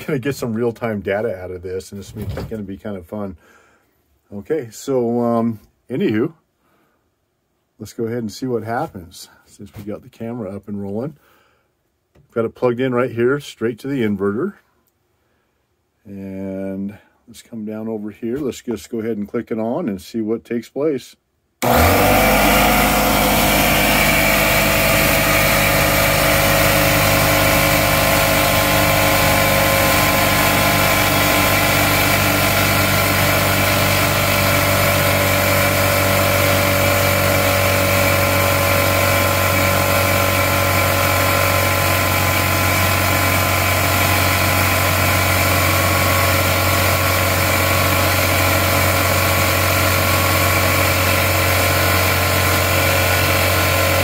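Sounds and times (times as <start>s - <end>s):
air compressor motor running: 21.6s - 54.0s.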